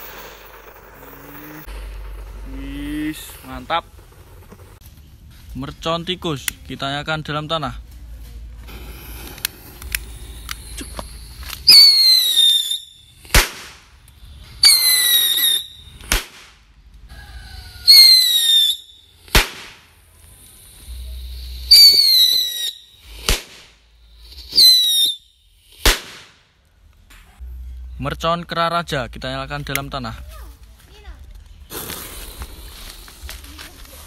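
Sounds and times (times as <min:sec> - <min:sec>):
firecracker bang: 0:08.7 - 0:16.7, 0:17.8 - 0:20.0, 0:20.9 - 0:26.6, 0:31.6 - 0:33.6
firecracker shrill whistle: 0:10.2 - 0:13.6, 0:14.2 - 0:16.1, 0:17.6 - 0:19.6, 0:20.8 - 0:26.3.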